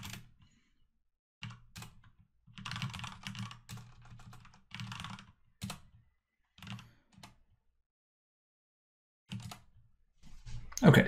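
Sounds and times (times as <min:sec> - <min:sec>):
typing on computer keyboard: 0:00.0 - 0:00.4, 0:01.4 - 0:06.0, 0:06.6 - 0:07.4, 0:09.3 - 0:09.8.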